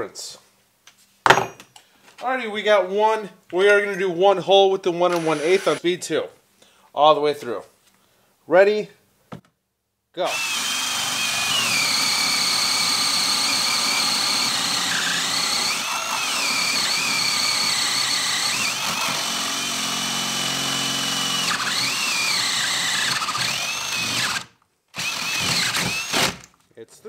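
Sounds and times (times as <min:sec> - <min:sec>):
power drill whining through wood: 0:05.1 - 0:05.8, 0:10.2 - 0:26.5.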